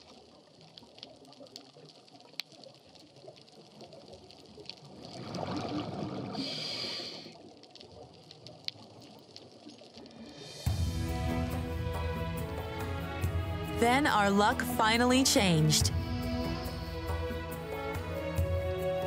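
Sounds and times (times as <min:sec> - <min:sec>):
rush of exhaled bubbles: 0:04.5 - 0:09.2
faint underwater hiss: 0:04.8 - 0:11.0.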